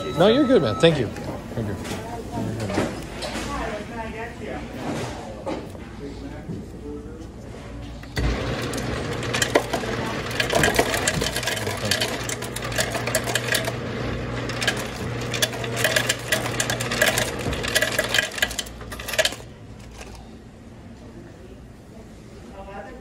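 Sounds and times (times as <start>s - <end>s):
soda dispenser humming: 8.1s - 20.2s
drink pouring into cup: 8.2s - 20.2s.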